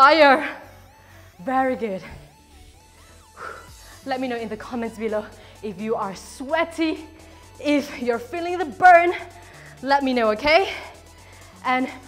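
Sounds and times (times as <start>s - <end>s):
faint background music: 0.0s - 12.0s
person breathing: 0.6s - 1.4s, 2.9s - 4.1s, 5.3s - 5.6s, 7.1s - 7.6s, 9.3s - 9.8s, 10.8s - 11.6s.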